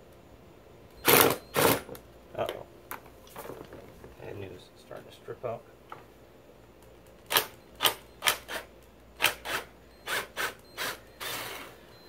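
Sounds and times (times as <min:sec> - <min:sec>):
cordless drill short bursts: 0:01.0 - 0:01.9, 0:07.3 - 0:11.9.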